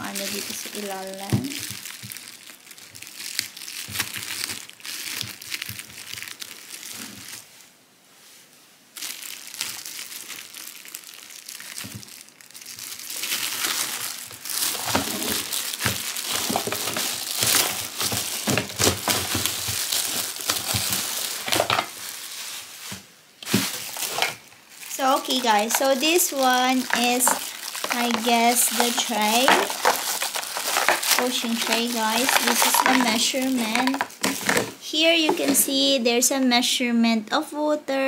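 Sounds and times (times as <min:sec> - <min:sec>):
plastic wrapping crinkling: 0:00.0 - 0:07.6, 0:08.9 - 0:35.9.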